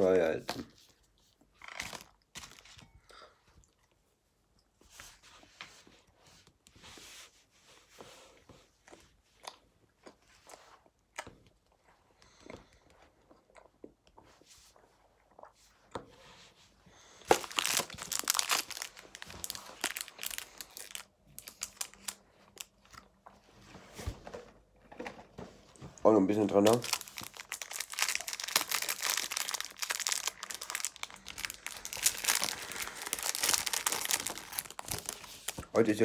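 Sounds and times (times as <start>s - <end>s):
packaging crinkling and tearing: 1.6s - 2.8s, 17.2s - 22.7s, 26.5s - 36.0s
chewing and crunching food: 8.5s - 16.0s, 17.3s - 23.4s, 26.7s - 35.5s.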